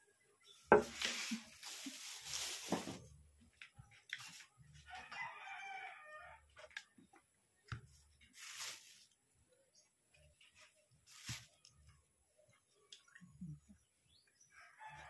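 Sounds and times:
rooster crowing: 4.9 - 6.5, 14.5 - 15.0.

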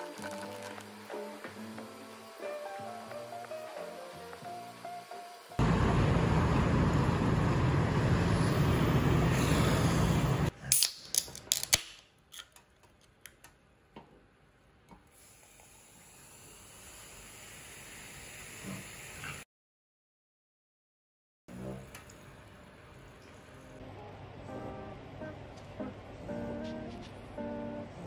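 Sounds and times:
fizzy drink poured over ice: 0.0 - 1.4.

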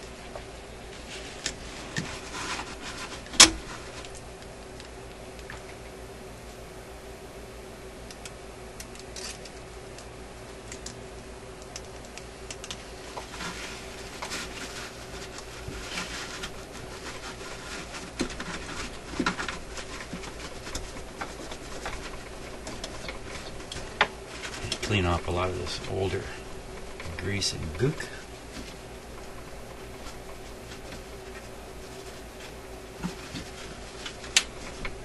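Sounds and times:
faint hum: 0.0 - 35.0
cloth rubbing on metal: 0.9 - 4.1, 13.0 - 35.0.

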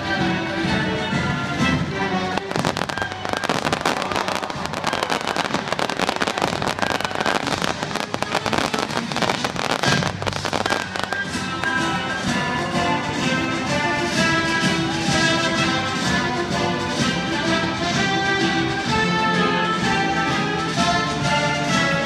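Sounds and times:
fireworks crackling and popping: 1.4 - 22.0.

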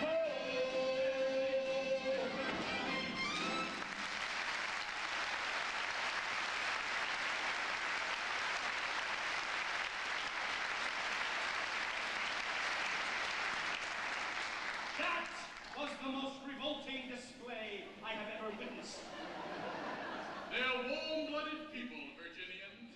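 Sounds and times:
audience applauding: 2.9 - 16.0.

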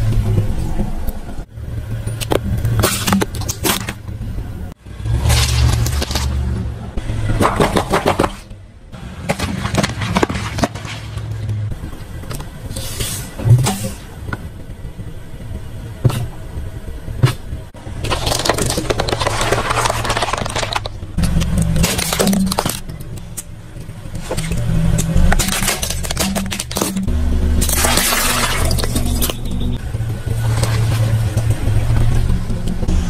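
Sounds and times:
car engine low rumble: 0.0 - 33.0
tyre crushing objects: 9.2 - 11.3, 17.2 - 23.3, 24.2 - 28.9.

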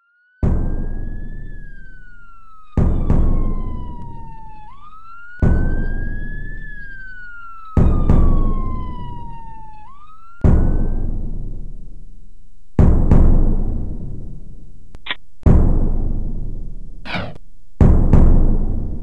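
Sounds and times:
wailing siren: 0.0 - 11.5
deep booming hits: 0.4 - 1.8, 2.8 - 4.6, 5.4 - 6.4, 10.4 - 12.1, 12.8 - 14.6, 15.4 - 19.0.

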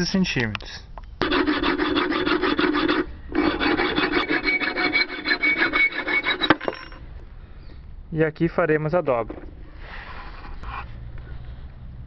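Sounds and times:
hacksaw cutting metal: 1.2 - 7.0
thin metallic ring: 4.5 - 7.1.

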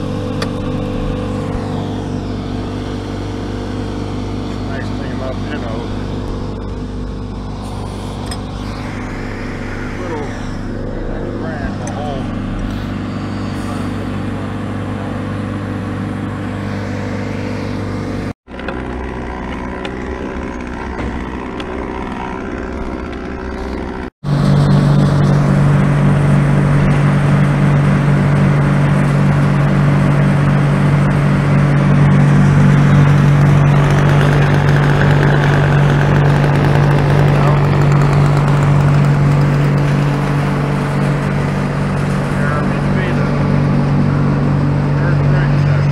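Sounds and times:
large engine running: 0.0 - 45.9.

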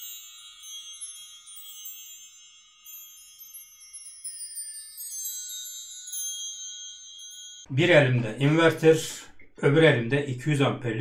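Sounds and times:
shimmering bell-like chimes: 0.0 - 7.7.

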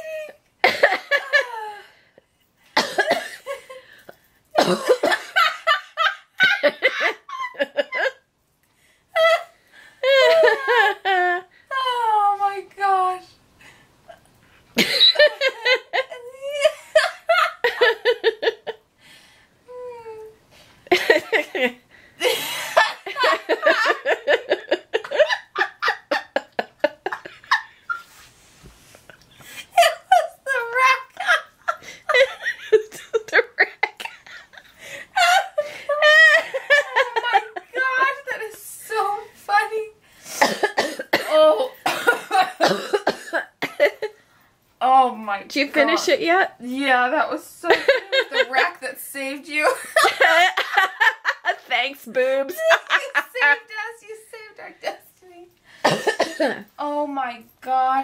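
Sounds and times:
woman laughing: 0.0 - 1.9, 4.6 - 8.2, 9.2 - 12.3, 14.8 - 18.8, 20.9 - 28.1, 29.6 - 39.9, 47.6 - 54.7
woman coughing: 2.8 - 3.5, 4.6 - 5.4, 40.4 - 44.1, 55.8 - 56.7.

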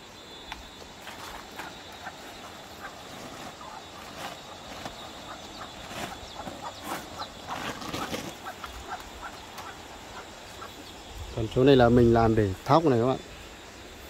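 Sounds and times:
scuffing rustle: 0.9 - 9.8
chickens clucking: 1.1 - 11.2.

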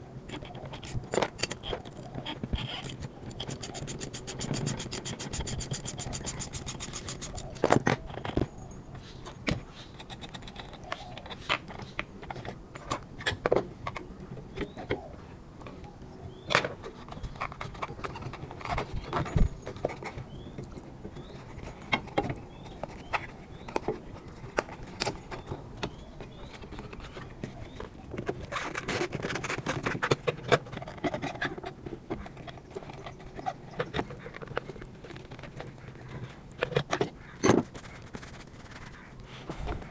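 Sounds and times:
fast run of clicks: 0.3 - 7.6.

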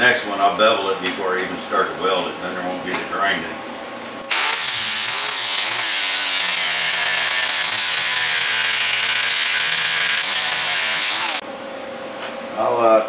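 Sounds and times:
angle grinder grinding metal: 4.3 - 11.4.

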